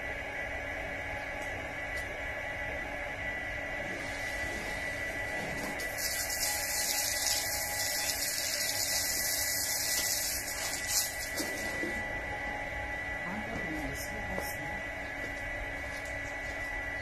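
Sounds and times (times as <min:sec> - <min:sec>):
hose spraying water on concrete: 0:05.4 - 0:11.9.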